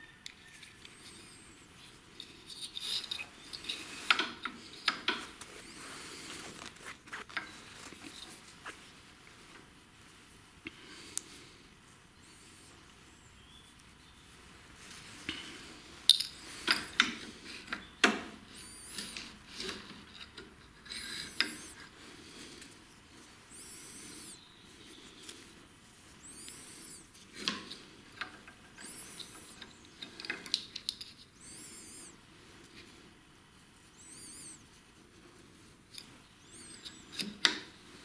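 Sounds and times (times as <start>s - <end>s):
high cord squeaks: 18.5s - 19.3s, 20.9s - 21.8s, 23.5s - 24.4s, 26.2s - 27.1s, 28.7s - 30.2s, 31.3s - 32.2s, 33.9s - 34.6s, 36.4s - 37.3s.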